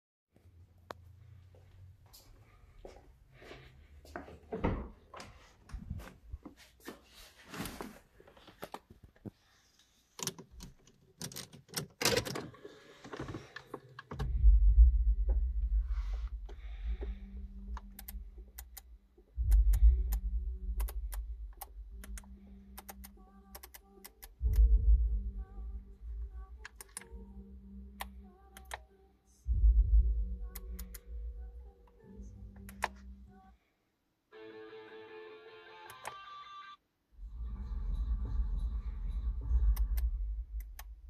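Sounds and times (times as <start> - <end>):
sharp evenly spaced clicks: 17.8 - 24.7.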